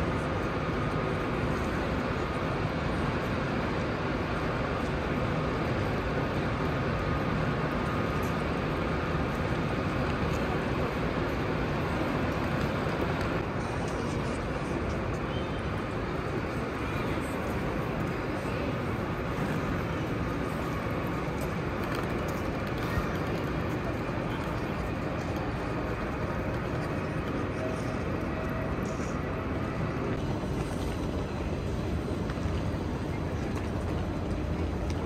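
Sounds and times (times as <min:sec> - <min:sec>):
station hall hum and rumble: 0:00.0 - 0:35.0.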